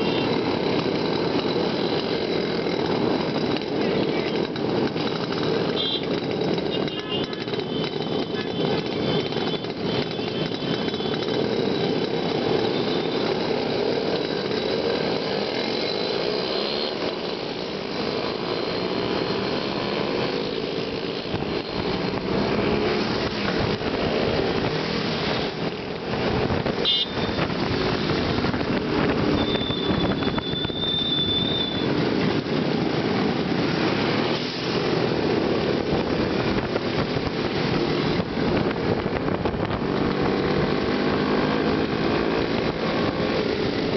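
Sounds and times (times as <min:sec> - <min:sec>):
motorcycle engines buzzing: 0:00.0 - 0:43.9
road noise: 0:00.0 - 0:43.9.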